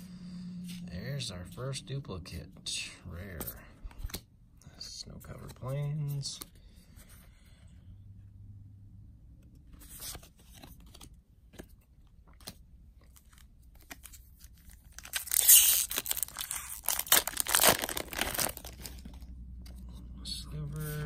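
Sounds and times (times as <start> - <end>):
foil wrapper tearing: 14.9 - 19.1.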